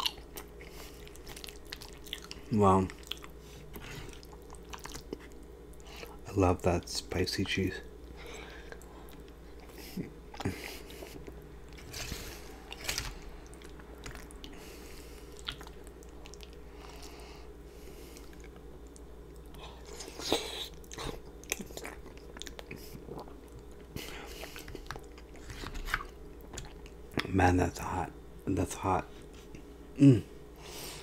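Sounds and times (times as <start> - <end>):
close-miked chewing: 0.0 - 6.2, 8.2 - 17.2, 18.0 - 27.3.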